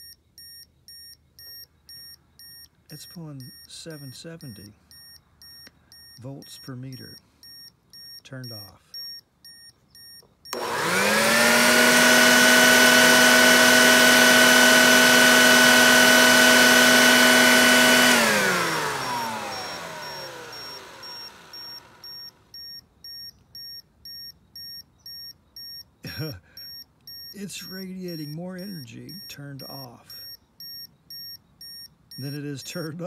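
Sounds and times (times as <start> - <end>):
meter alert beeps: 0.0 - 10.6, 19.0 - 32.9
shop vacuum motor running: 10.5 - 22.4.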